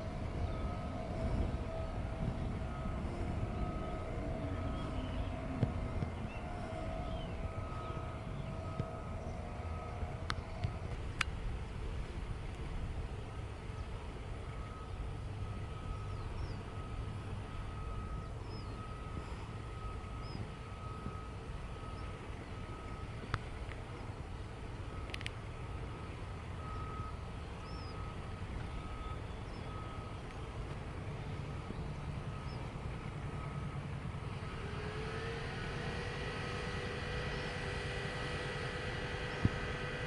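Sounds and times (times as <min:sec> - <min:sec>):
machinery rumbling: 0:00.0 - 0:40.0
thin whining tone: 0:00.0 - 0:40.0
faint bird chirps: 0:15.7 - 0:17.1, 0:17.7 - 0:23.0, 0:26.0 - 0:30.5.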